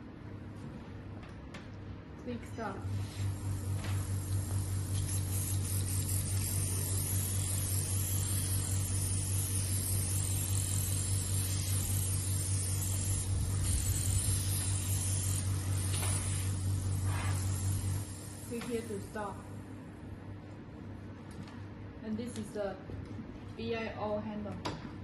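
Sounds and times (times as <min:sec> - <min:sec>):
machine pump humming: 0:02.8 - 0:20.0
air and mist hissing: 0:02.9 - 0:19.3.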